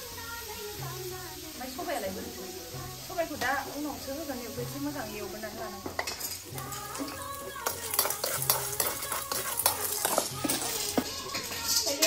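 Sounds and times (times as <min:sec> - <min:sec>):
food sizzling: 0:00.0 - 0:12.0
metal spoon scraping wok: 0:05.9 - 0:12.0.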